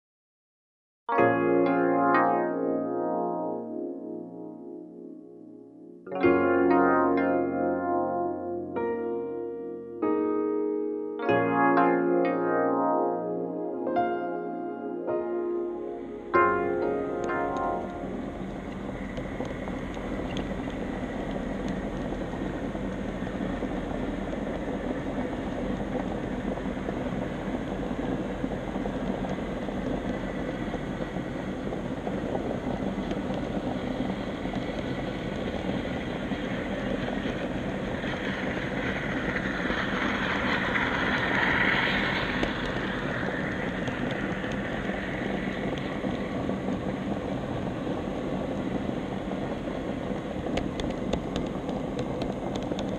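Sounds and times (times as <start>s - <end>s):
high hiss: 18.0s - 52.6s
model trolley motor whirring: 18.8s - 52.9s.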